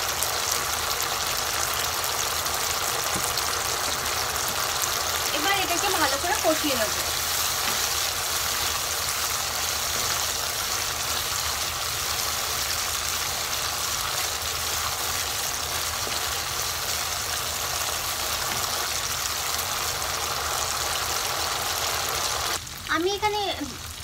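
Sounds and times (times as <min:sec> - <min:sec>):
spice paste sizzling in hot oil: 0:00.0 - 0:24.0
spatula stirring in pan: 0:05.8 - 0:13.6.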